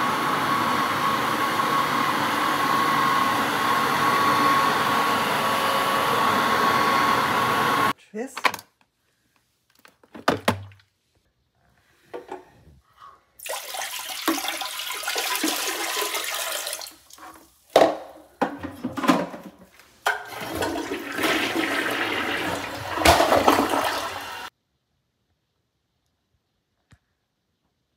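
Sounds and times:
water pouring into toilet bowl: 13.4s - 17.6s, 20.1s - 24.5s
toilet flushing: 13.4s - 24.5s.

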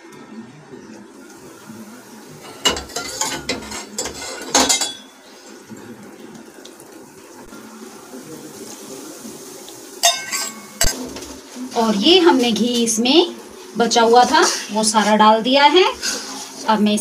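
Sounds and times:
batter sizzling softly: 0.0s - 17.0s
metal spoon scraping metal pan: 2.4s - 5.0s.

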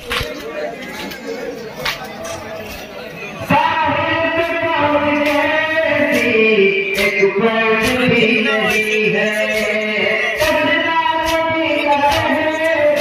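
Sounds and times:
men chanting a lament: 0.1s - 13.0s.

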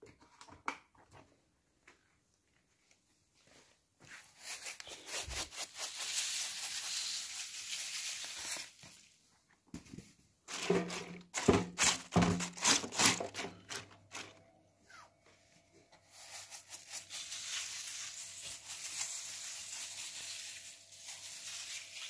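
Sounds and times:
hands rubbing chopped vegetables: 4.0s - 9.0s, 16.0s - 22.0s.

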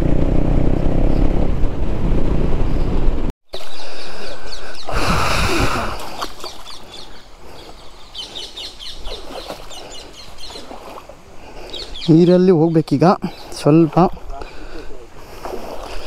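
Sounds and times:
motorcycle engine running: 0.0s - 3.3s
wind noise: 0.0s - 3.3s, 4.4s - 7.0s
birds chirping: 2.6s - 16.0s
stream rushing hiss: 3.6s - 12.4s.

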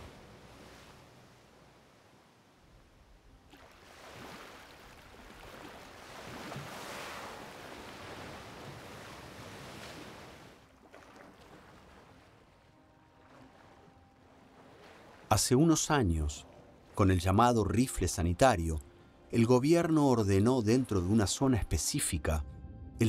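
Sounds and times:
waves: 0.0s - 22.4s
wind: 0.0s - 23.0s
water splashing around whale: 3.4s - 15.5s.

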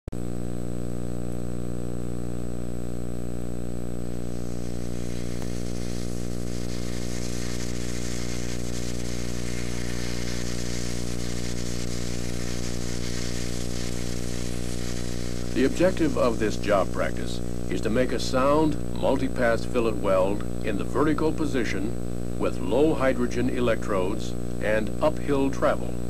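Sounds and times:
low electrical hum: 0.2s - 26.0s
hiss: 4.1s - 18.8s.

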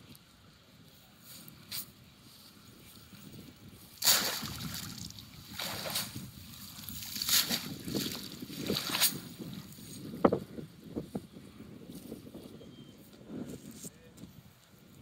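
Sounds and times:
net splashing into water: 4.0s - 9.4s.

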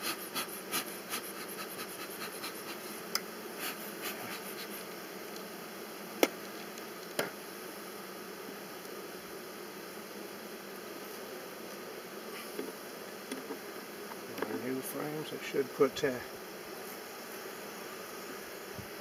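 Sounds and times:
bees humming: 0.0s - 19.0s
bellows puffing: 3.6s - 4.9s.

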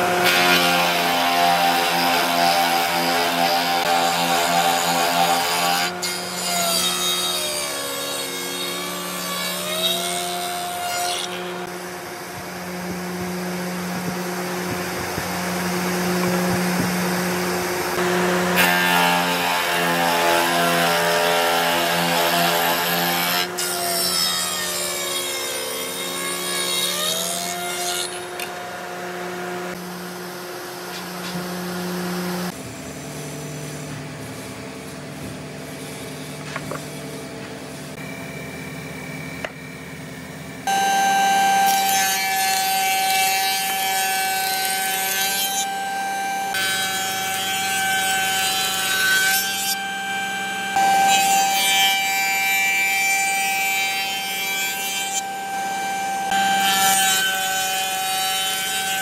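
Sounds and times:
high steady machine whine: 11.4s - 18.2s, 29.7s - 41.8s, 48.7s - 52.4s, 55.0s - 56.9s.

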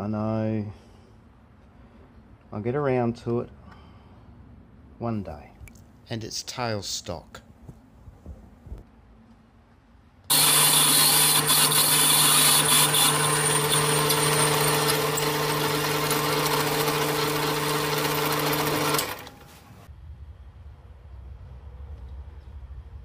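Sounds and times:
drill cutting hiss: 10.3s - 19.8s
lathe motor humming: 10.3s - 19.9s.

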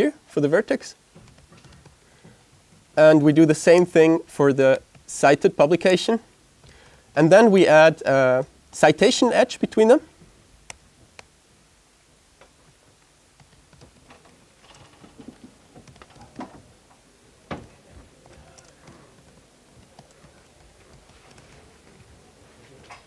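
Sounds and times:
laptop keyboard typing: 1.2s - 2.0s, 12.6s - 16.6s, 17.7s - 22.1s.

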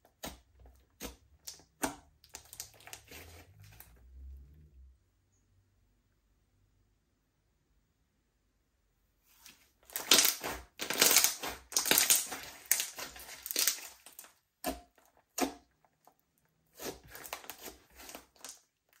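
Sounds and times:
slime crackling and popping: 1.0s - 3.3s, 9.8s - 19.0s.

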